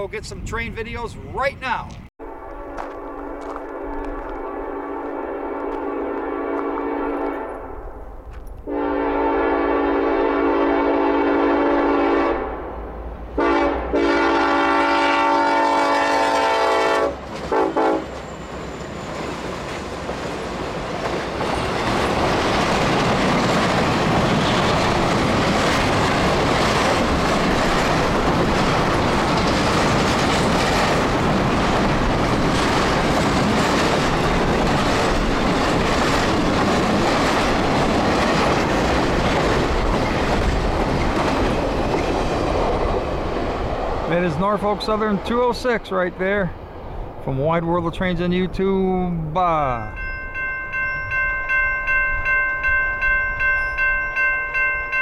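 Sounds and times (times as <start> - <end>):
freight train rumbling: 0.0 - 55.0
train horn blasts: 2.2 - 7.8, 8.7 - 12.7, 13.4 - 18.2
wheels clacking over rails: 17.2 - 43.1.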